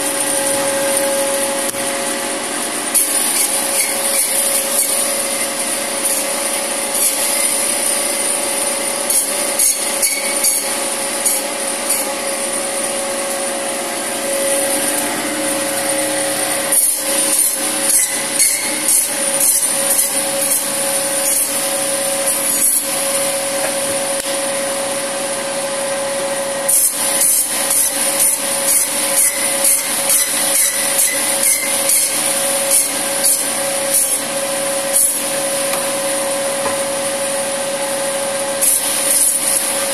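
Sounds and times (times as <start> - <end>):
band saw running: 0.0 - 39.9
saw rasping through bone: 3.0 - 12.3, 16.5 - 23.8, 26.9 - 34.3.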